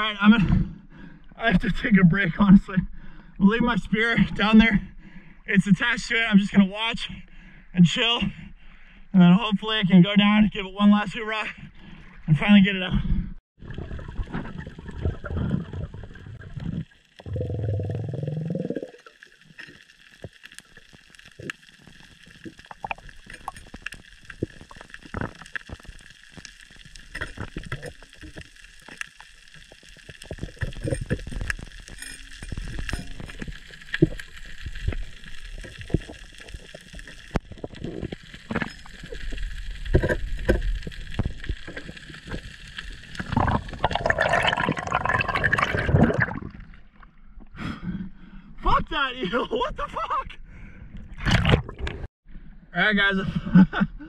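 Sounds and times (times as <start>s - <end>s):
muffled underwater gurgling rush: 12.8s - 19.2s, 32.4s - 46.8s
underwater clicking and crackling: 13.6s - 47.6s, 50.9s - 52.1s.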